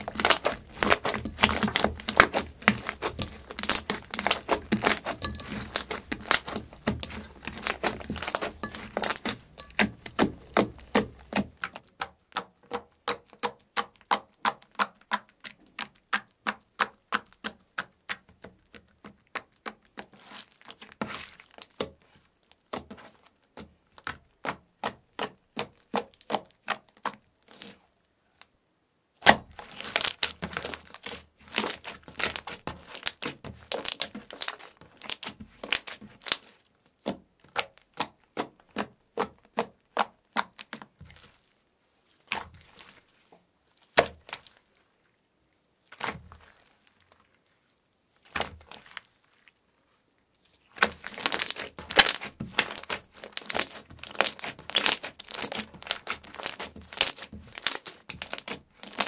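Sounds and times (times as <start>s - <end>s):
slime clicking and popping: 0.0s - 18.2s, 29.6s - 40.8s, 50.8s - 59.0s.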